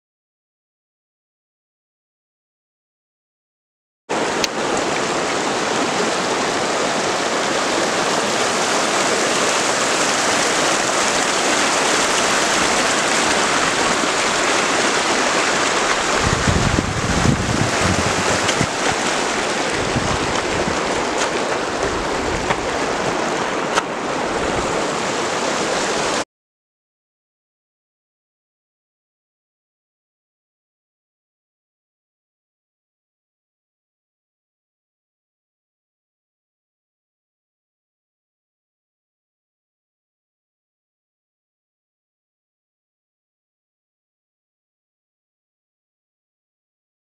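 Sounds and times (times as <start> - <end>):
meltwater stream rushing: 4.1 - 26.2
wind buffeting microphone: 12.2 - 26.2.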